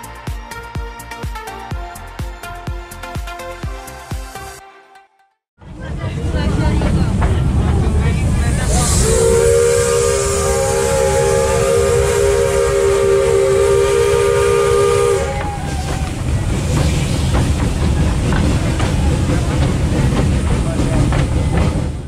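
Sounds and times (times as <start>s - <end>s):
low rumble of moving train: 5.6s - 22.0s
steam hiss: 8.5s - 20.1s
steam whistle blast: 8.7s - 16.0s.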